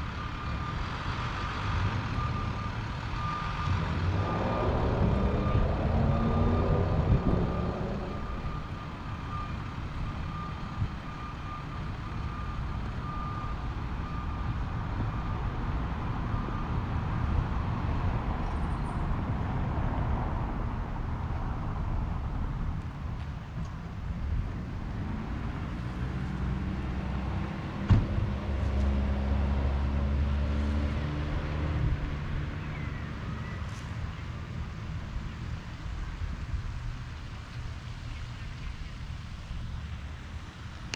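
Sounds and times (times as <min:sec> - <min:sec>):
low engine rumble: 0:00.0 - 0:40.9
reversing alarm beeping: 0:00.1 - 0:14.5
low steady rumble: 0:03.1 - 0:10.9
sharp thump: 0:27.9 - 0:28.4.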